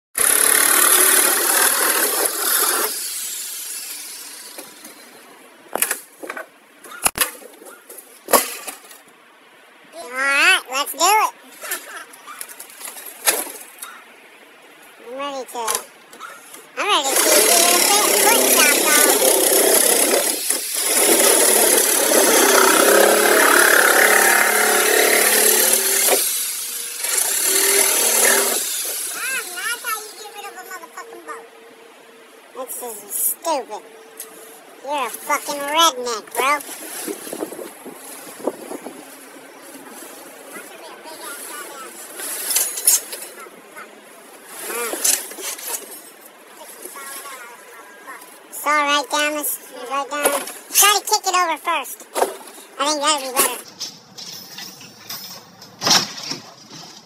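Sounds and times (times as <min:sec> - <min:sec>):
reciprocating saw cutting: 0:00.2 - 0:05.1, 0:17.0 - 0:30.3
knocks and clanks: 0:53.4 - 0:57.0.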